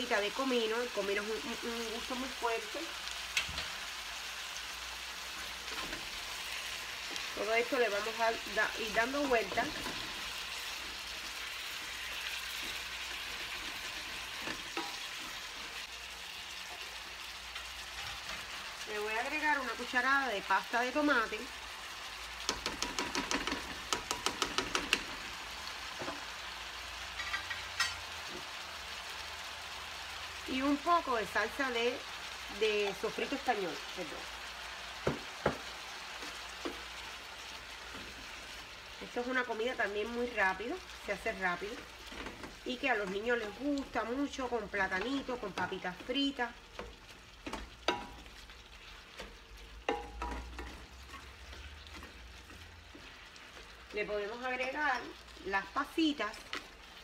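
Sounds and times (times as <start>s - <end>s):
food sizzling in pan: 0.0s - 57.0s
spatula scraping pan: 9.2s - 15.8s
spatula knocking against pan: 22.4s - 25.1s
spoon tapping on pan: 22.4s - 25.2s, 35.0s - 35.7s, 46.8s - 48.3s, 49.2s - 51.2s.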